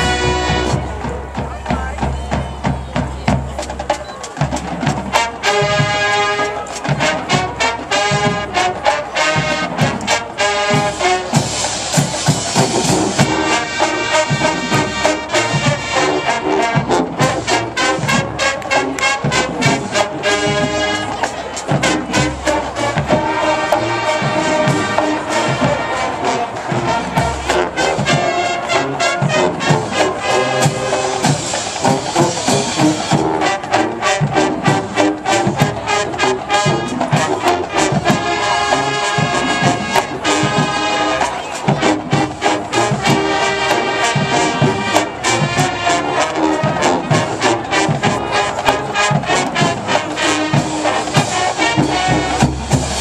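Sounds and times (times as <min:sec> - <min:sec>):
brass band playing: 0:00.0 - 0:53.0
drumline strikes: 0:00.0 - 0:53.0.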